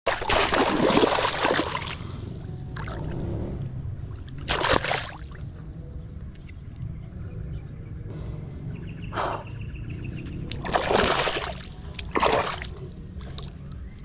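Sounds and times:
water splashing: 0:00.1 - 0:03.3, 0:04.0 - 0:05.7, 0:10.3 - 0:14.0.

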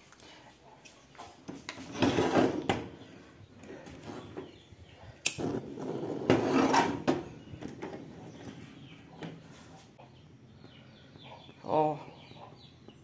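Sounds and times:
frying pan scraping on metal grate: 0:05.5 - 0:08.4.

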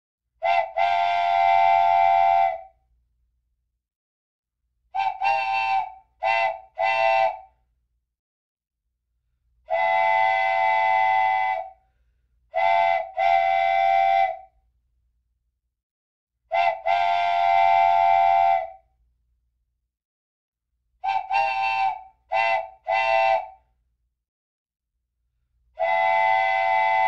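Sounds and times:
steam boat whistle tooting: 0:00.4 - 0:02.7, 0:05.0 - 0:07.5, 0:09.7 - 0:11.8, 0:12.6 - 0:14.5, 0:16.5 - 0:18.8, 0:21.0 - 0:23.6, 0:25.8 - 0:27.0.

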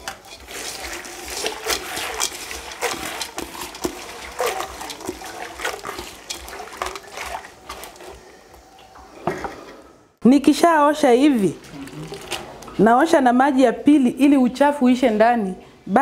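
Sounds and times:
water splashing and sloshing in pot: 0:00.0 - 0:09.7.

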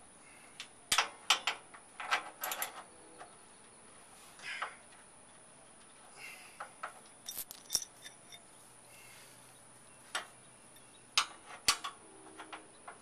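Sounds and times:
metallic clinks of hand tools: 0:07.3 - 0:08.4.

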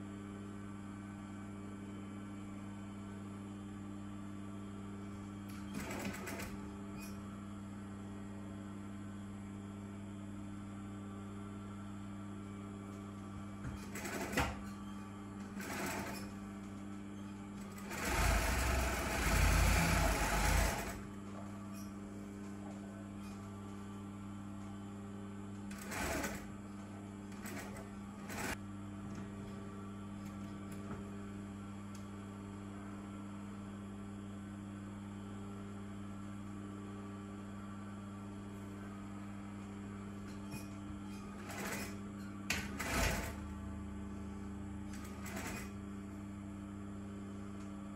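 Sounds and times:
motor hum: 0:00.0 - 0:47.9
sewing machine stitching: 0:05.6 - 0:06.6, 0:15.5 - 0:16.3, 0:17.6 - 0:21.1, 0:25.7 - 0:26.5, 0:41.3 - 0:43.4.

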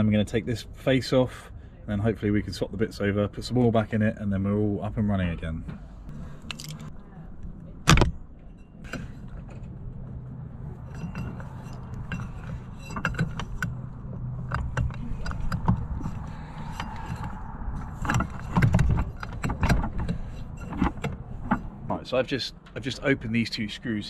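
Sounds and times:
clicks and rattles of outboard propeller: 0:10.9 - 0:21.9.

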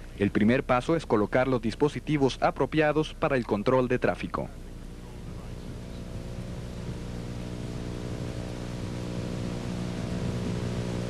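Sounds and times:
truck engine idling: 0:04.8 - 0:11.0.

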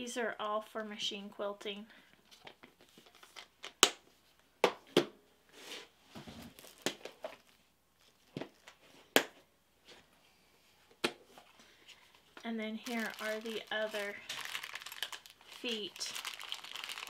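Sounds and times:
light crinkling: 0:11.3 - 0:17.0.

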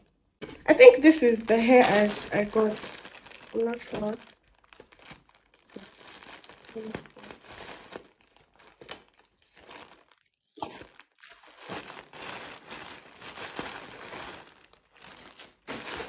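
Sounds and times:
plastic bag crinkling: 0:00.7 - 0:16.0.

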